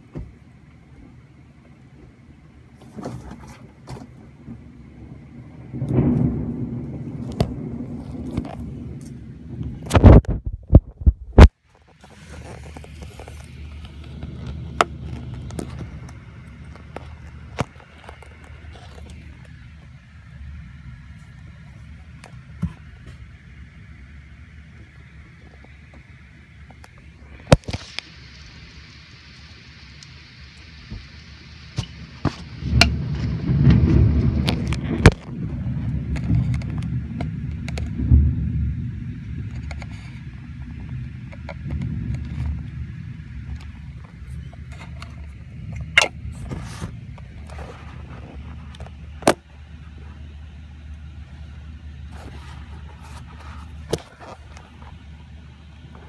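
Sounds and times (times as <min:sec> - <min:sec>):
heavy rain behind window: 0:00.0 - 0:56.0
thunder rumbling: 0:00.0 - 0:56.0
thunder cracks: 0:04.2 - 0:11.5, 0:27.0 - 0:49.3.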